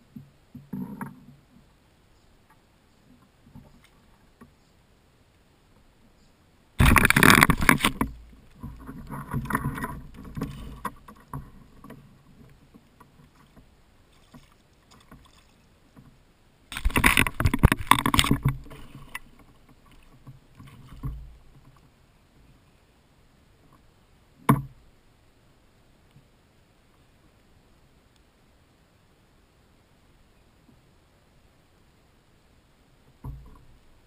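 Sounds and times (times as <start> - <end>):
water splashing beside a kayak: 6.7 - 28.8
water sloshing: 6.8 - 21.9.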